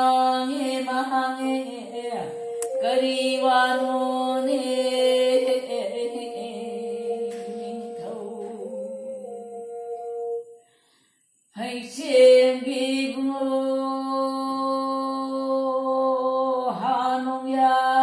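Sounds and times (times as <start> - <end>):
string instrument: 0.0 - 10.6
woman singing chant-like melody: 0.0 - 10.6, 11.5 - 18.0.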